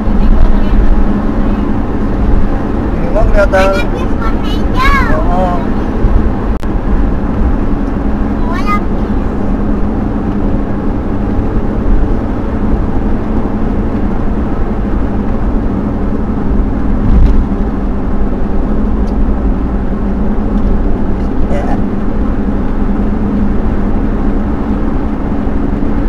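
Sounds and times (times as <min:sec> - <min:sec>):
car cruising road noise: 0:00.0 - 0:26.0
low bump: 0:10.1 - 0:21.2.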